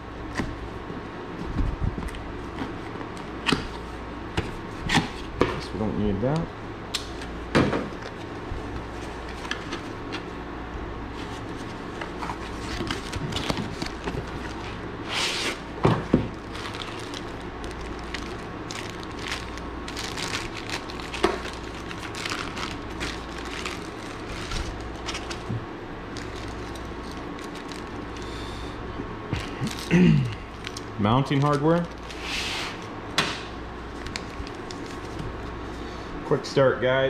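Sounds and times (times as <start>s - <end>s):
steady low hum: 0.0s - 37.0s
plastic bags crinkling: 11.6s - 14.8s, 16.3s - 28.3s, 29.4s - 32.2s, 33.9s - 35.3s.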